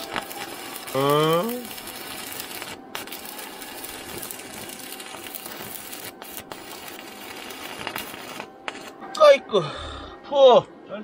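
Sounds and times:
arc welding crackling hiss: 0.0s - 9.0s.

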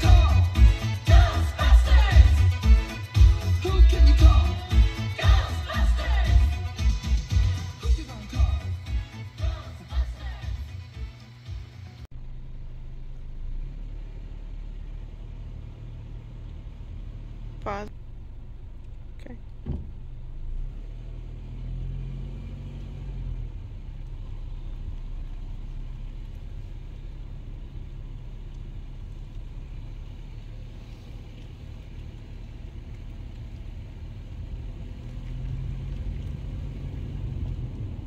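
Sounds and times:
car engine rumble: 0.0s - 38.0s
road noise: 0.0s - 38.0s.

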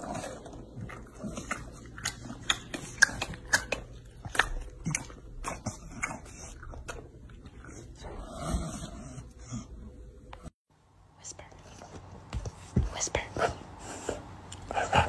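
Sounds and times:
dog chewing crunchy cereal: 0.0s - 8.0s.

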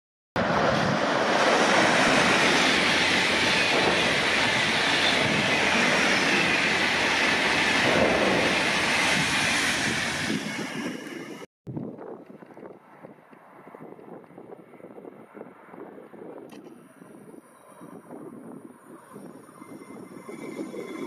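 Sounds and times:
train wheels on rails: 0.4s - 11.5s
high tones from train wheels: 16.8s - 21.0s.

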